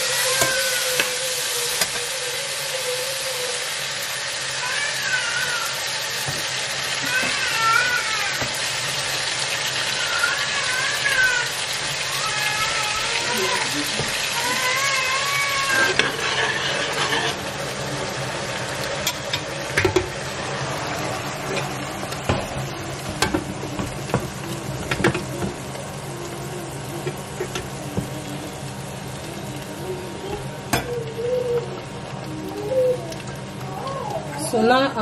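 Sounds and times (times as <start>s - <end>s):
greens sizzling: 0.0s - 35.0s
wooden spoon stirring pot: 13.4s - 17.4s.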